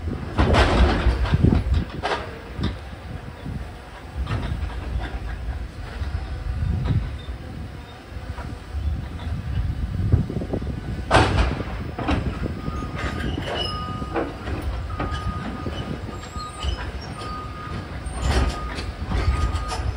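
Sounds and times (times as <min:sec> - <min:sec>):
freight train rumbling on track: 0:00.0 - 0:19.9
metallic clanks and knocks: 0:00.4 - 0:02.8, 0:11.1 - 0:19.9.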